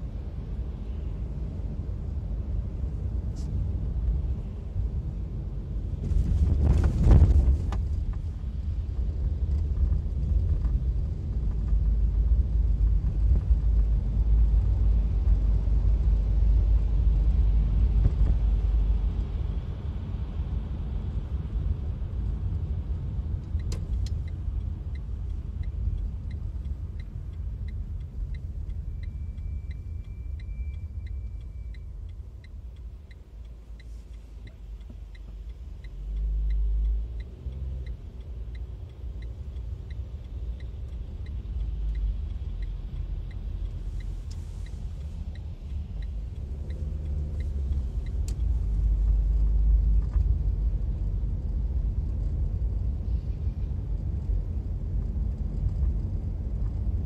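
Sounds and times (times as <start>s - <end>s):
engine and tyre rumble: 0.0s - 57.0s
faint regular ticking: 23.3s - 51.5s.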